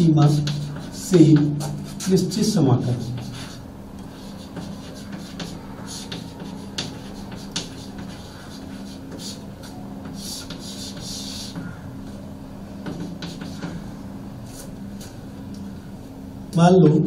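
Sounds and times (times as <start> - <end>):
chalk scratching strokes: 0.0 - 15.2
chalk tapping on chalkboard: 0.2 - 2.3, 2.9 - 11.8, 12.8 - 13.8.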